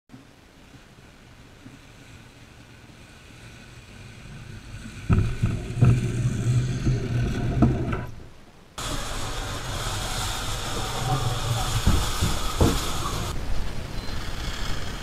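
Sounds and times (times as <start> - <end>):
toy motor humming: 8.8 - 13.4
knocks and rattles: 10.5 - 13.3.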